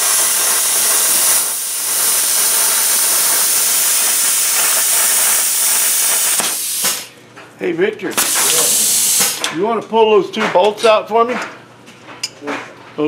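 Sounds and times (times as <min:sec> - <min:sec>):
plasma cutter hissing: 0:00.0 - 0:07.1, 0:08.1 - 0:09.5.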